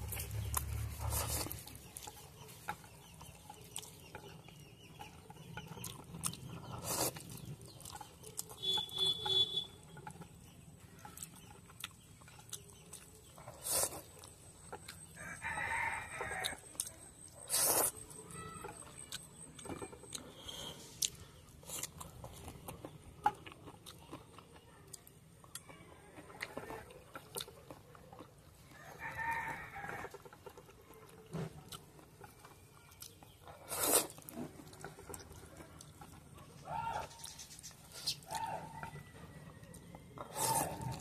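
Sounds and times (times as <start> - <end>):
chewing and slurping: 0.0 - 15.4, 16.2 - 41.0
rooster crowing: 15.2 - 16.6, 28.8 - 30.2.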